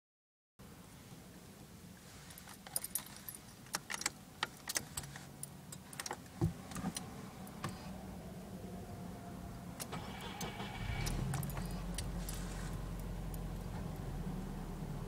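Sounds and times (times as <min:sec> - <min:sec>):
car keys jangling in ignition: 0:02.3 - 0:07.7, 0:09.8 - 0:13.7.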